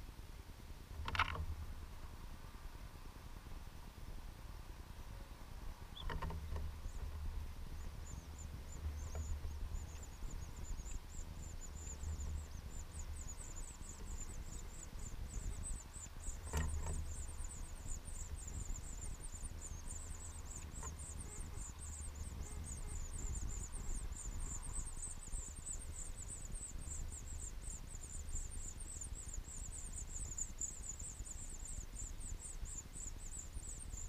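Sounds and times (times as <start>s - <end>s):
nestlings peeping: 5.6s - 34.0s.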